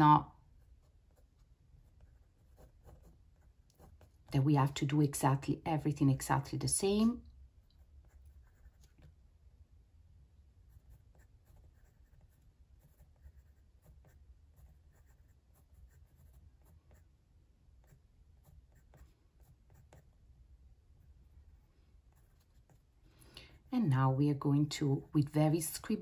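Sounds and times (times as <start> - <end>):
pencil scratching on paper: 0.6 - 4.8, 7.8 - 9.1, 10.7 - 17.1, 17.8 - 20.2, 22.1 - 22.9.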